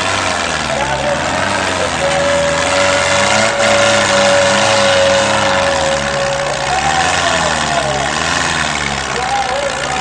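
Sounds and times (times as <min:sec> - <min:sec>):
tractor engines under load: 0:00.0 - 0:10.0
long held note: 0:00.7 - 0:08.1.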